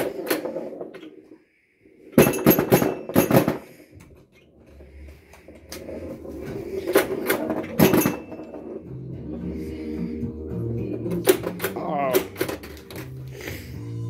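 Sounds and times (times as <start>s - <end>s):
pinball rolling: 2.1s - 13.2s.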